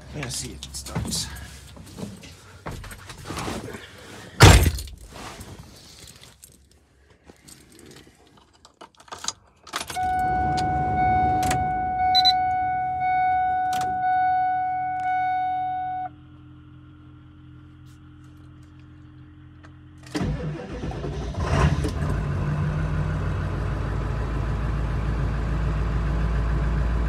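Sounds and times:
car warning chime: 10.0s - 16.1s.

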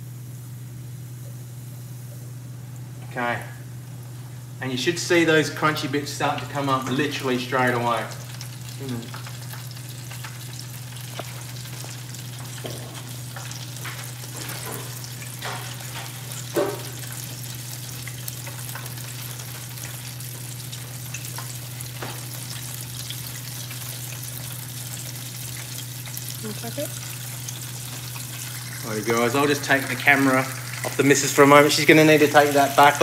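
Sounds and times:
chicken deep-frying in oil: 0.0s - 33.0s.

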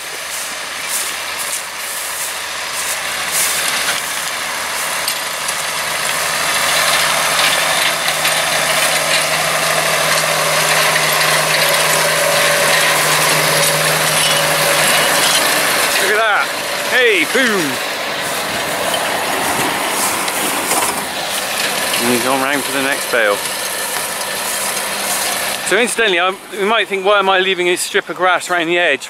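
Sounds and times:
steady hum: 0.0s - 27.1s
tractor and baler drone: 0.0s - 29.0s.

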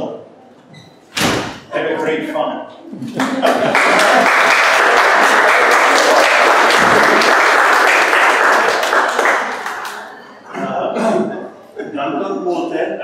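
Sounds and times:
small group applauding: 3.1s - 10.4s.

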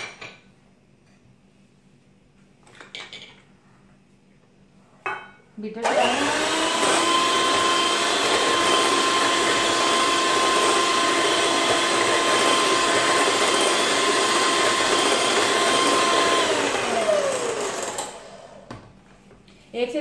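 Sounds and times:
electric mixer motor whining: 5.8s - 18.8s.

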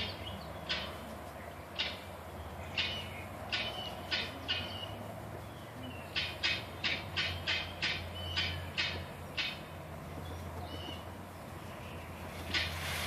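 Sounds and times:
peacock feathers rustling: 10.0s - 13.0s.

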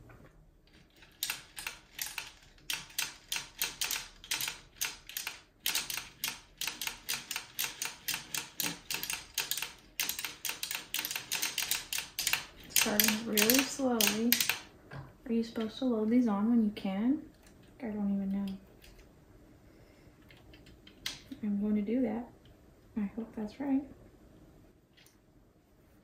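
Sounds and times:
knitting machine needles clicking: 0.7s - 14.7s.

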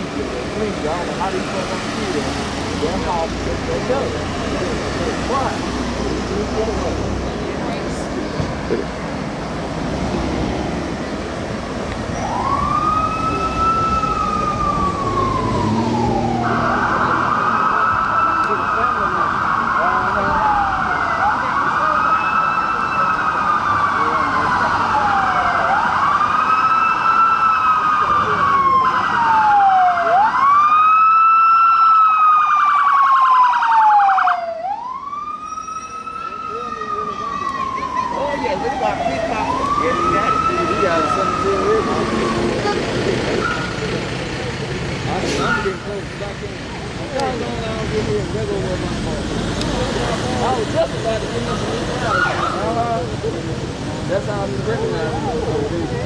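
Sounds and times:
cars passing on road: 0.0s - 56.0s
siren wailing: 12.1s - 43.8s.

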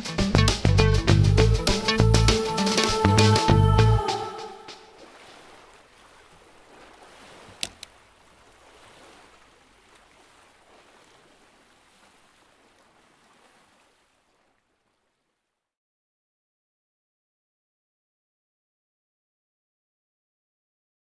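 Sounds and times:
water-like ambient noise: 1.3s - 15.8s.

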